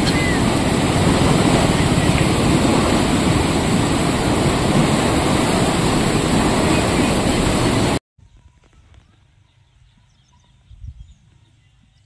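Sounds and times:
floodwater rushing down stream: 0.0s - 8.0s.

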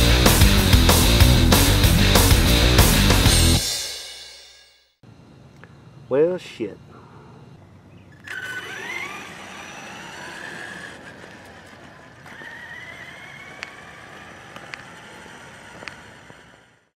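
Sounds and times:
rc truck electric motor whining: 8.1s - 16.9s
sharp ticks: 10.8s - 16.7s.

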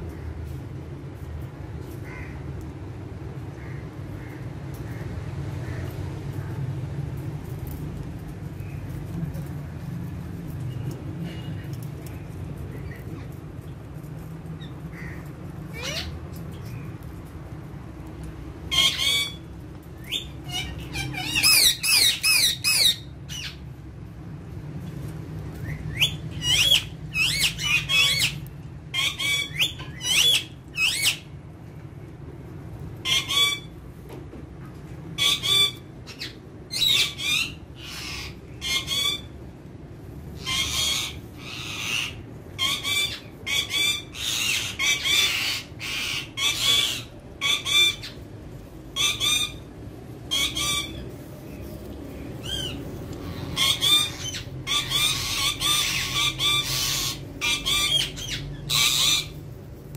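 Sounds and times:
parakeets squawking: 14.6s - 16.9s, 18.6s - 23.7s, 25.6s - 31.4s, 33.0s - 33.7s, 35.2s - 39.3s, 40.4s - 48.2s, 48.9s - 59.5s.

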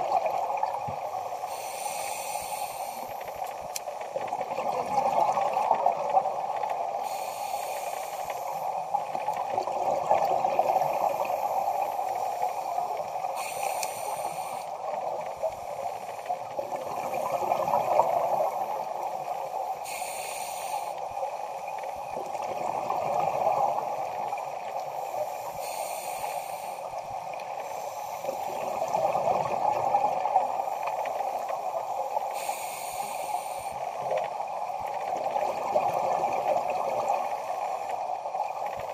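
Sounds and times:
steady underwater rush: 0.0s - 38.9s
regulator hissing inhale: 1.3s - 4.1s, 7.0s - 9.2s, 10.7s - 17.4s, 18.0s - 22.0s, 24.7s - 28.8s, 30.4s - 34.0s
gurgle of exhaled bubbles: 4.2s - 6.8s, 9.2s - 11.5s, 16.5s - 18.6s, 22.1s - 24.8s, 28.4s - 30.5s, 34.0s - 37.4s.

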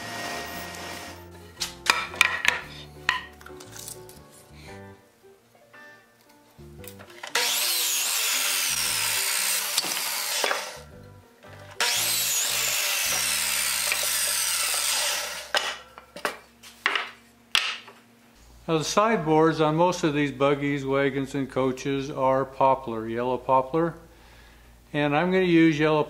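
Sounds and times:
electric saw cutting wood: 0.0s - 1.3s, 7.2s - 10.9s, 11.7s - 15.8s
background music: 0.0s - 26.0s
wood clattering: 1.6s - 4.2s.

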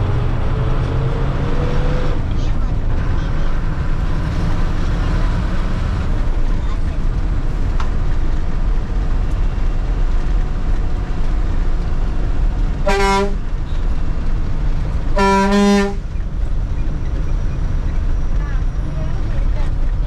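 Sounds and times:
bus engine running: 0.0s - 20.0s
bus horn blasts: 12.8s - 13.8s, 15.1s - 16.1s.

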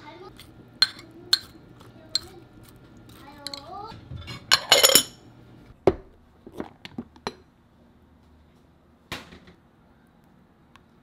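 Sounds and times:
dishes knocking and clinking: 3.5s - 5.2s
glassware clattering: 4.2s - 5.2s.

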